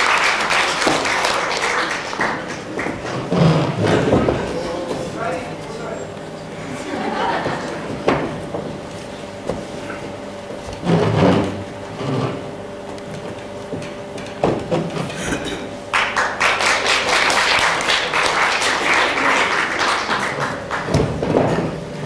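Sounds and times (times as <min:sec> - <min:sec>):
audience applause: 0:00.0 - 0:05.4, 0:06.6 - 0:08.2, 0:15.1 - 0:22.0
wooden knocks on stage floor: 0:08.0 - 0:08.7, 0:20.8 - 0:21.8.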